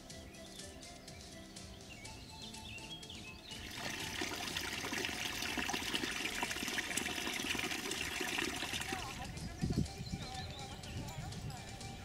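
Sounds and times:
water splashing onto stones: 0:03.6 - 0:09.3.

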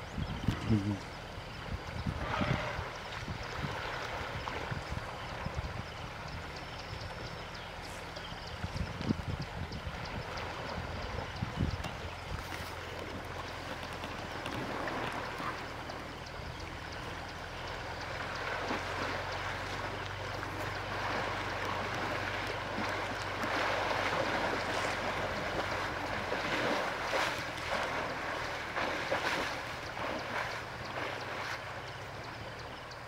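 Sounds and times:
steady low hum: 0:00.0 - 0:33.0
elephant splashing through water: 0:02.1 - 0:06.2, 0:12.3 - 0:32.8
river water rushing: 0:12.1 - 0:33.0.

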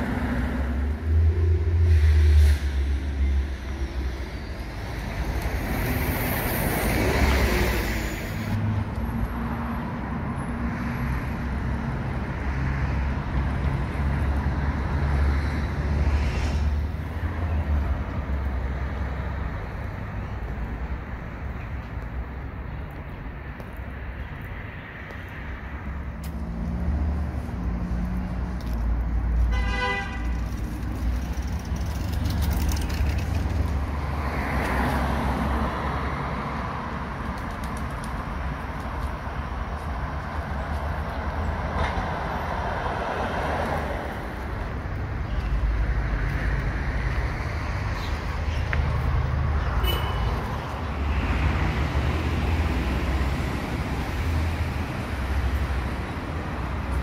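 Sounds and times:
road traffic passing: 0:00.0 - 0:57.0
car horn toot: 0:29.5 - 0:30.3, 0:49.8 - 0:50.4.

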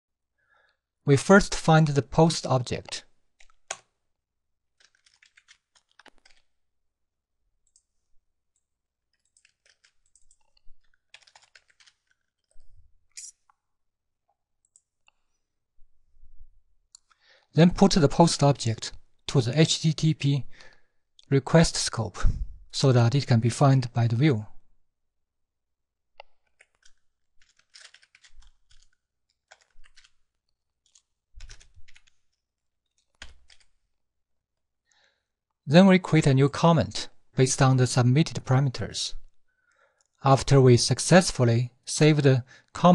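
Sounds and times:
computer keyboard typing: 0:02.8 - 0:03.9, 0:04.8 - 0:06.5, 0:07.6 - 0:13.3, 0:14.6 - 0:15.0, 0:26.2 - 0:33.8.

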